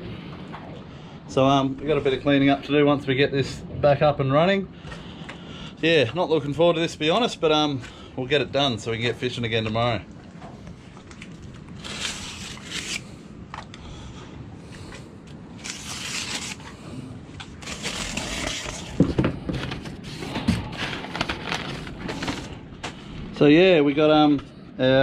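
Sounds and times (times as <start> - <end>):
knife slicing packing tape: 11.8 - 13.1, 15.6 - 16.7, 17.6 - 19.0
cardboard and paper rustling: 15.6 - 16.7, 17.4 - 23.0.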